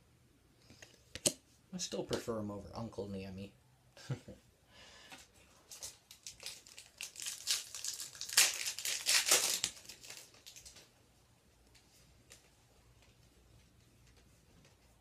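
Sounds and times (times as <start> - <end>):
wrapper crinkling and tearing: 5.6 - 10.9.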